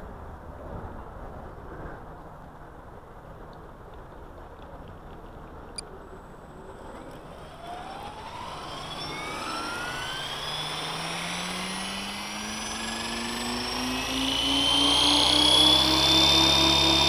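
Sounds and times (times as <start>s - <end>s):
model helicopter rotor whine: 5.8s - 17.0s.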